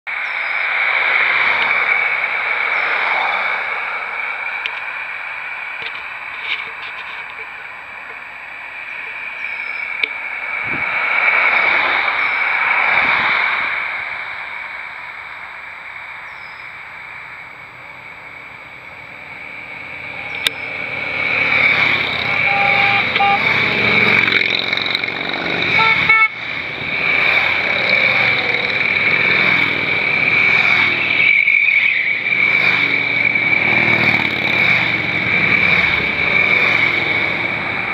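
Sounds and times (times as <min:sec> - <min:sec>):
broad rushing noise: 0:00.1 - 0:37.9
motorcycle engines: 0:00.1 - 0:37.9
high-pitched insect drone: 0:18.2 - 0:37.4.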